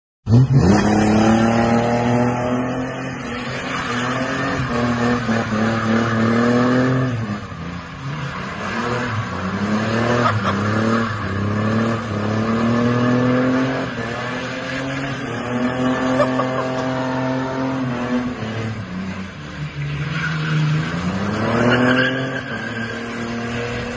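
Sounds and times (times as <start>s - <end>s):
car engine revving hard: 0.3s - 18.8s
tyres screeching on road: 0.3s - 23.9s.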